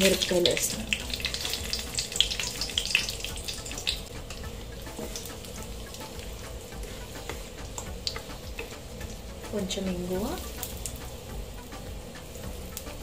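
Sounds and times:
spices sizzling in hot oil: 0.0s - 13.0s
wooden spatula stirring: 4.2s - 9.2s.

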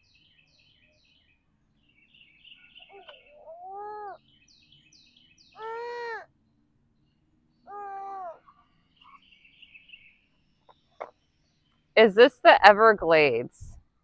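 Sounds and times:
songbird downslurred chirps: 0.0s - 11.9s
nasal bird call: 2.7s - 4.2s, 5.5s - 6.3s, 7.7s - 9.3s.

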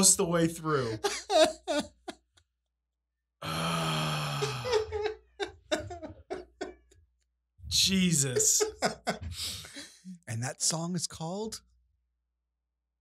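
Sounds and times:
men laughing hard: 0.8s - 2.4s, 3.9s - 6.9s, 8.0s - 10.0s.

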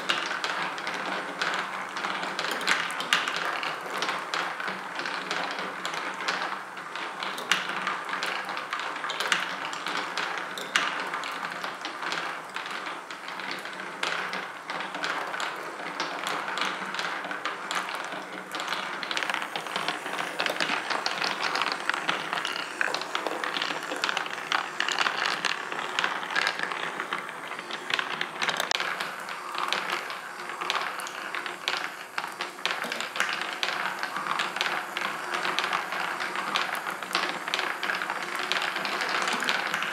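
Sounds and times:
marbles rolling and clicking: 0.0s - 39.9s
marble machine lift motor: 15.6s - 39.9s.

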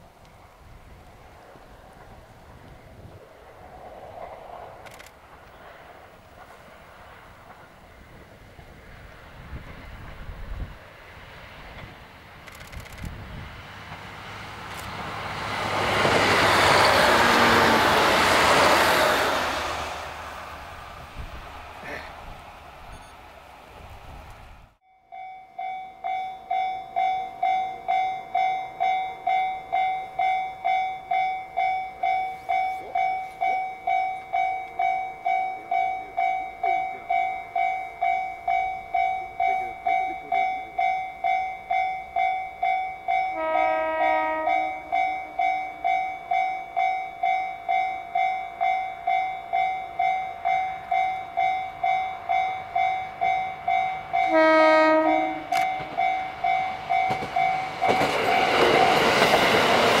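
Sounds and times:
train horn blast: 16.7s - 18.1s, 43.3s - 45.0s, 54.2s - 56.1s
level crossing bell ringing: 24.8s - 43.7s.

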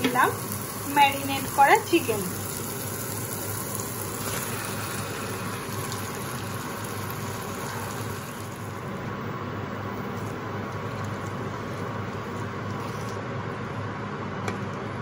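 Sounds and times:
chicken sizzling in a pan: 0.0s - 8.8s.

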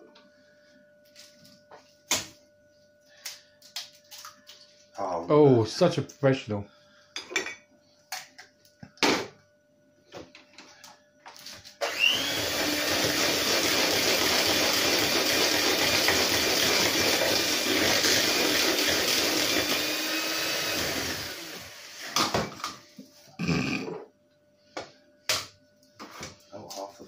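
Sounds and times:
electric hand mixer whining: 11.8s - 22.2s.

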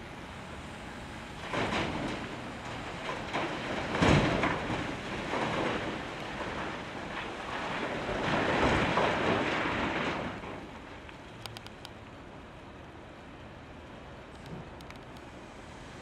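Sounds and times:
loader engine running: 0.0s - 6.7s
rocks tumbling into trailer: 1.4s - 11.0s.

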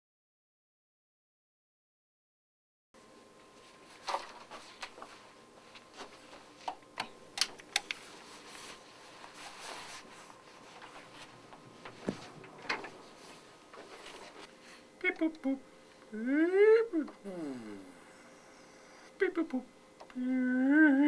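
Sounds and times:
faint steady hum: 3.0s - 21.0s.

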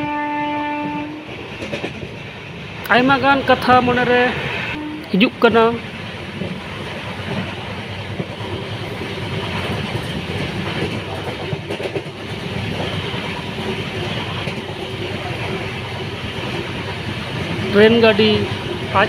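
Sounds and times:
train wheels rumbling on rail: 0.0s - 19.0s
clatter over rail joints: 1.4s - 2.3s, 6.3s - 17.8s.

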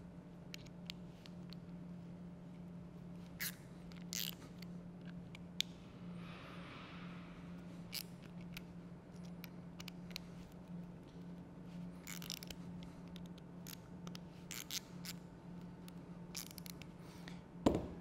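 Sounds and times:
allen key clicks and scrapes: 3.2s - 5.2s, 11.9s - 15.2s, 15.9s - 17.0s.

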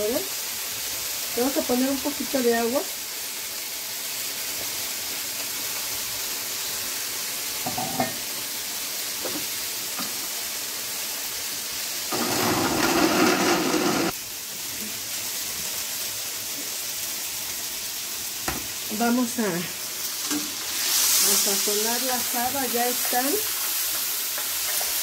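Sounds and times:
beans sizzling in a pan: 0.0s - 25.0s
blender grinding: 12.1s - 14.2s.

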